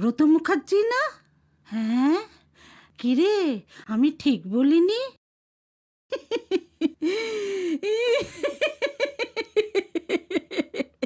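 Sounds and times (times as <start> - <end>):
woman laughing: 6.1 - 11.0.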